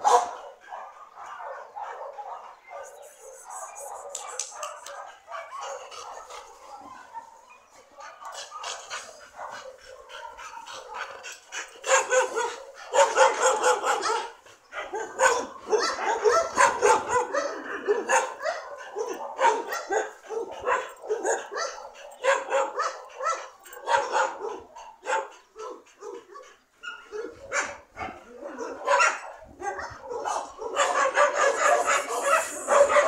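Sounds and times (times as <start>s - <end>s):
dogs barking: 0.0s - 33.0s.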